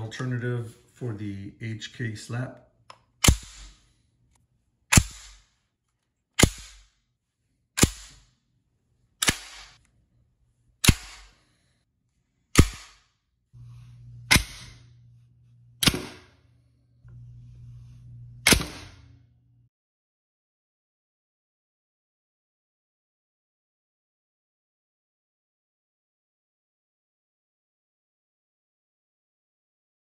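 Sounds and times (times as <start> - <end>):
low hum: 13.5 - 19.7.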